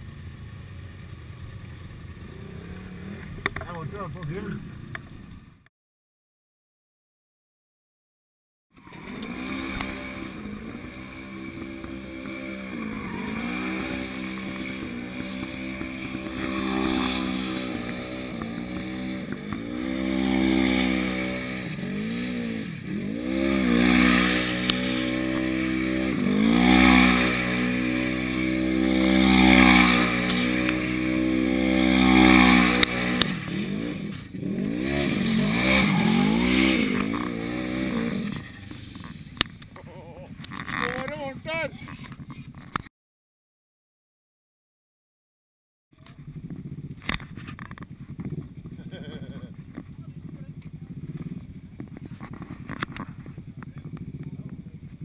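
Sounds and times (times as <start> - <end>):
wheels spinning on asphalt: 0.0 - 5.7, 8.7 - 42.9, 46.0 - 55.0
engine revving: 8.8 - 39.9.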